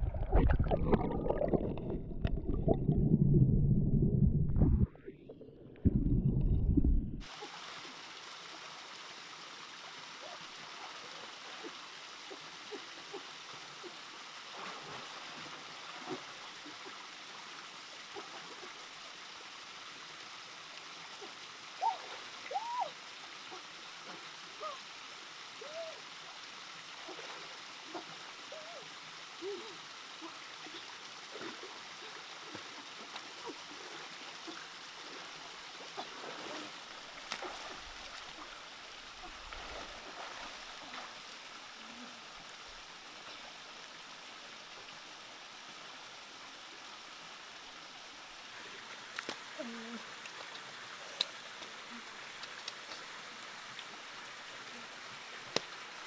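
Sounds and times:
water splashes and plinks: 0.0 - 9.1, 29.4 - 43.6
stream and small waterfall: 7.2 - 56.0.

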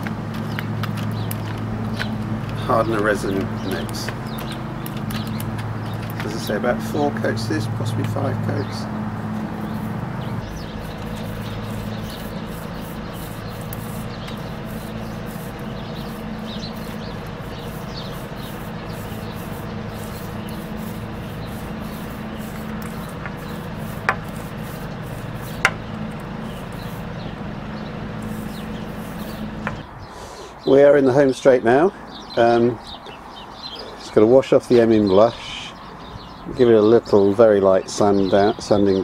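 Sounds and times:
foam roller rubbing: 9.3 - 25.8, 26.4 - 27.2, 28.1 - 29.8.

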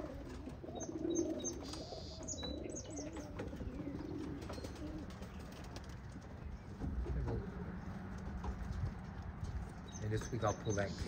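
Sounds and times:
pigeons cooing: 0.0 - 8.7
bird chirping: 0.6 - 5.6, 9.8 - 11.0.

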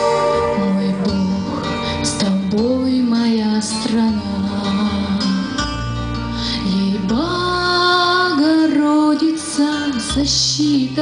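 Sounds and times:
woman singing into microphone: 0.0 - 5.8, 6.4 - 11.0
instrumental accompaniment: 0.0 - 7.6.

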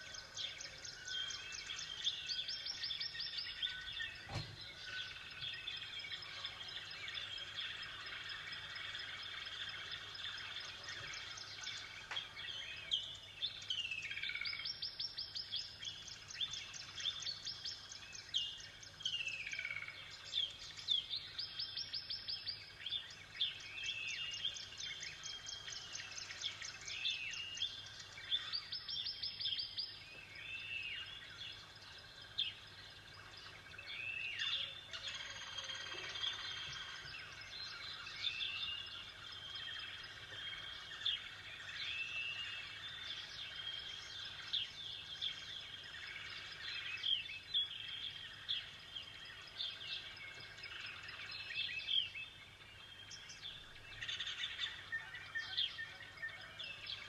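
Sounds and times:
songbirds singing: 0.0 - 57.0.

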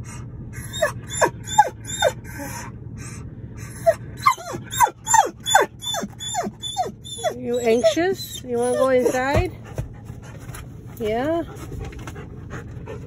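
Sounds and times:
dog whining: 0.0 - 9.7.

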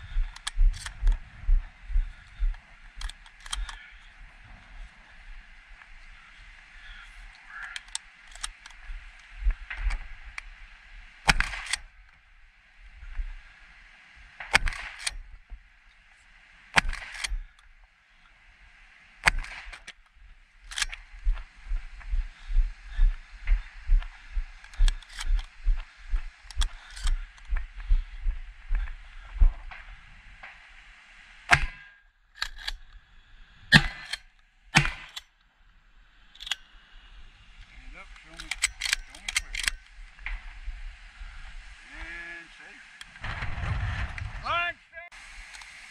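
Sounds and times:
gun action clicks: 0.3 - 1.2, 3.0 - 3.8, 7.6 - 8.8, 11.3 - 11.9, 14.4 - 15.2, 16.8 - 17.4, 19.2 - 20.0, 20.6 - 21.0, 24.6 - 25.6, 26.5 - 27.2, 32.4 - 33.0, 36.3 - 36.6, 38.3 - 39.9
shotgun shots: 11.3 - 11.8, 31.5 - 31.9, 33.7 - 34.1, 34.8 - 35.2.

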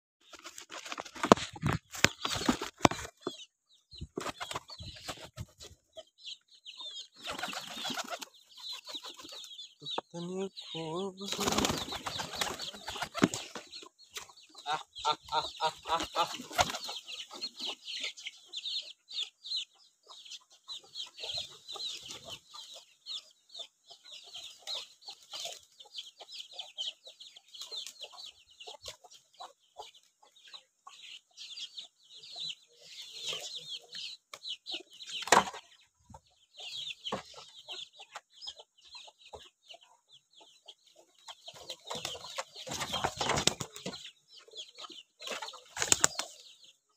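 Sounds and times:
birds chirping: 0.2 - 46.9
chickens clucking: 0.2 - 46.9
pigeon wing flaps: 11.4 - 13.4, 43.1 - 43.6, 45.8 - 46.2.

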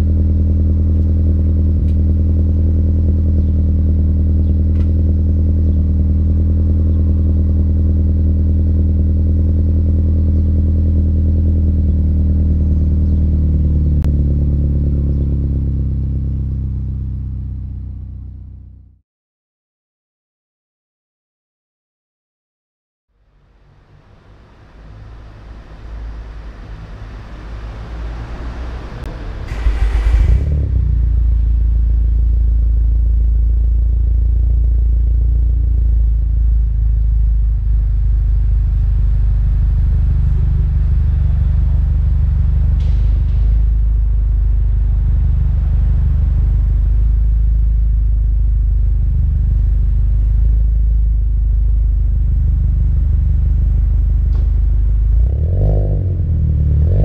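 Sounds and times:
car exhaust idle rumble: 0.0 - 19.0, 29.0 - 55.5.

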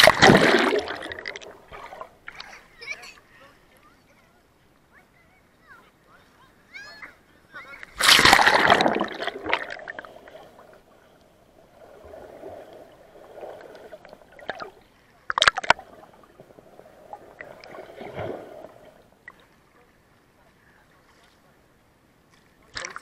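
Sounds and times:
camera splashing into water: 0.0 - 2.5, 7.9 - 10.0
rush of bubbles: 0.0 - 2.5, 7.9 - 10.9, 11.6 - 19.0
sharp splashes: 0.0 - 2.7, 7.8 - 10.6, 17.4 - 18.9
swimmer moving underwater: 0.0 - 2.8, 7.8 - 19.5
underwater gurgling: 0.0 - 2.8, 7.8 - 19.4.

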